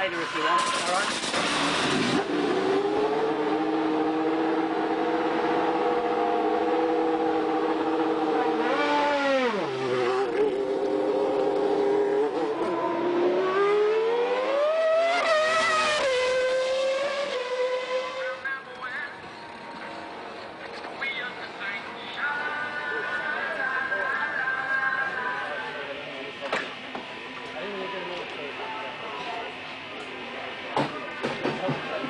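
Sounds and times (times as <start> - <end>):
racing car engine at high revs: 0.0 - 18.6.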